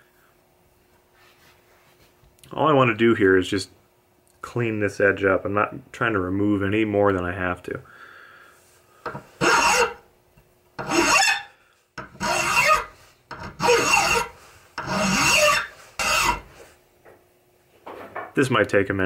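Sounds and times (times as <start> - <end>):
file rasping on steel: 9.0 - 10.0, 10.8 - 16.7.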